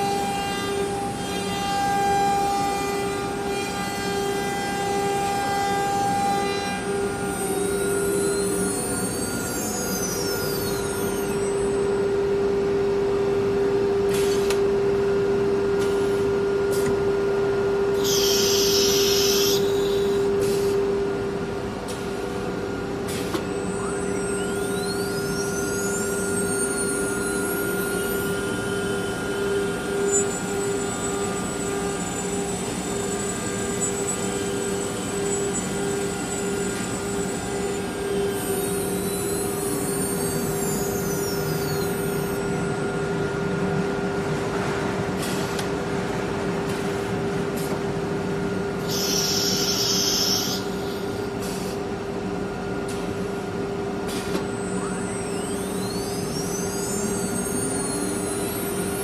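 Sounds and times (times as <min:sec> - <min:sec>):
machine noise: 0:00.0 - 0:59.0
faint high whines: 0:06.8 - 0:13.0, 0:23.5 - 0:43.8, 0:54.4 - 0:59.0
compressed air hiss: 0:18.0 - 0:20.8
router spindle humming: 0:54.8 - 0:57.4.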